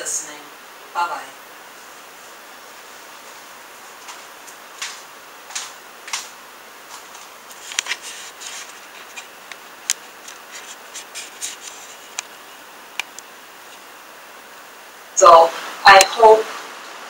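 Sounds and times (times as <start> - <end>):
low hiss: 0.0 - 17.0
rustling and handling things: 1.7 - 13.9.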